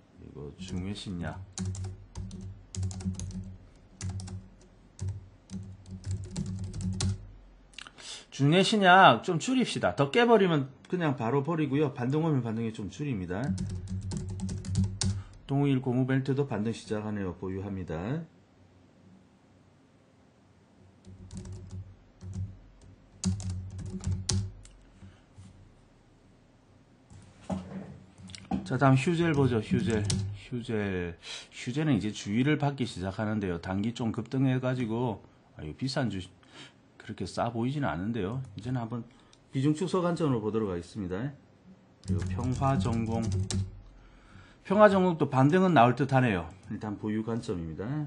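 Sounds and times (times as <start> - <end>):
computer keyboard typing: 0.6 - 7.2, 13.4 - 15.4, 21.0 - 24.8, 29.3 - 30.3, 42.0 - 43.8.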